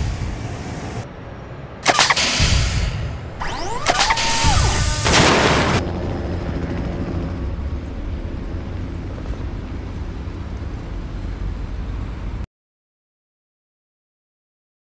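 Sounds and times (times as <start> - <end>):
aircraft low rumble: 2.4 - 12.5.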